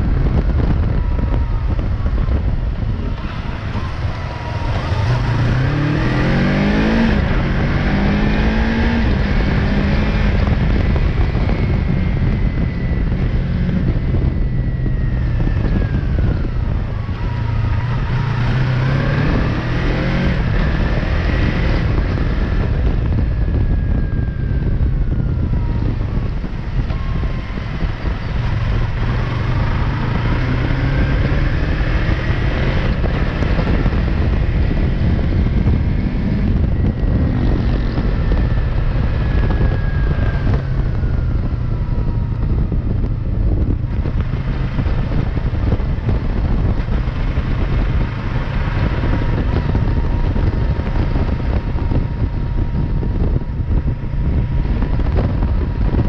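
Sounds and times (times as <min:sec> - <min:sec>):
motorcycle engine revving: 0:00.0 - 0:56.0
wind buffeting microphone: 0:00.0 - 0:56.0.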